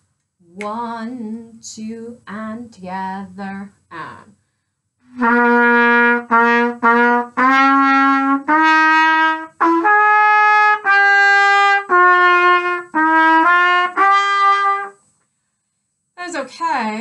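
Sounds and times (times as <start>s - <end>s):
brass instrument playing: 5.0s - 15.0s.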